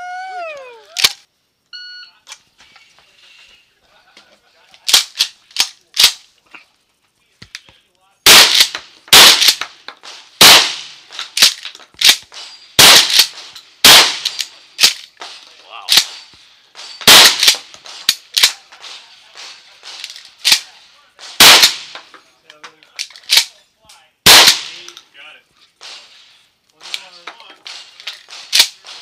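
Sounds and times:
shells loading clacks: 4.7 - 6.3, 8.3 - 29.0
shotgun blasts: 8.2 - 22.1, 24.2 - 24.9, 26.8 - 29.0.

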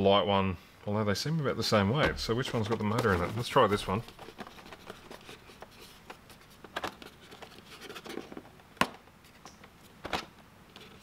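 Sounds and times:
tray scraping in cardboard sleeve: 2.1 - 6.5.

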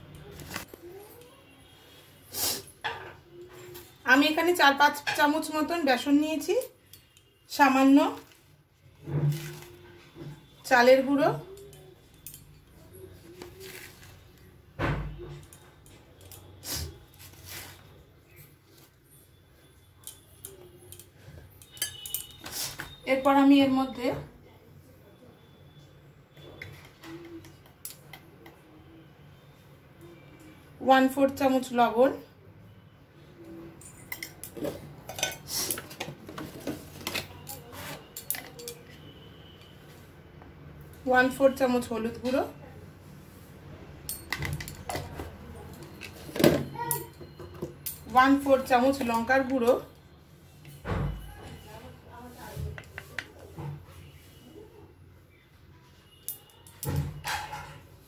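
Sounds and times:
spoons clinking against bowl: 6.5 - 7.4, 11.4 - 13.9, 20.0 - 23.0, 33.8 - 39.7, 44.1 - 49.8, 56.1 - 57.8.

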